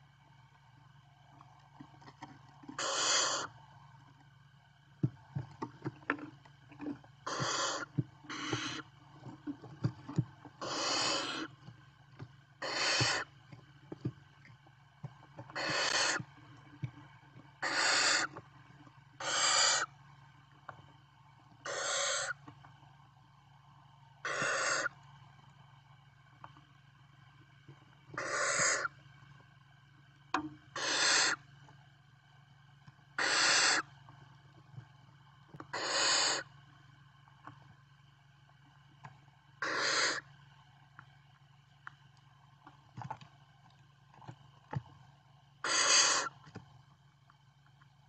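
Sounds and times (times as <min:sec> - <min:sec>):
steady low hum: 0:00.0 - 0:48.0
owl chicks hissing calls: 0:02.8 - 0:03.5, 0:07.2 - 0:08.9, 0:10.6 - 0:11.6, 0:12.6 - 0:13.3, 0:15.5 - 0:16.2, 0:17.6 - 0:18.4, 0:19.2 - 0:19.9, 0:21.6 - 0:22.4, 0:24.2 - 0:25.0, 0:28.2 - 0:29.0, 0:30.7 - 0:31.4, 0:33.2 - 0:33.9, 0:35.7 - 0:36.5, 0:39.6 - 0:40.3, 0:45.6 - 0:46.4.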